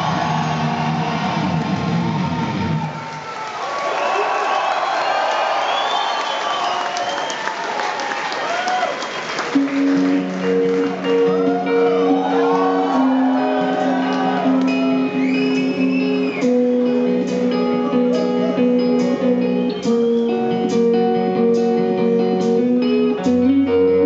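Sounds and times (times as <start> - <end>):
rock guitar through concert pa: 0.0 - 3.2, 9.6 - 24.0.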